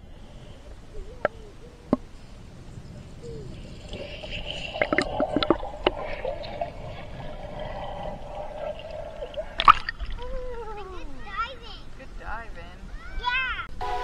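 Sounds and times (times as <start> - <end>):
muffled water sloshing underwater: 0.0 - 10.6.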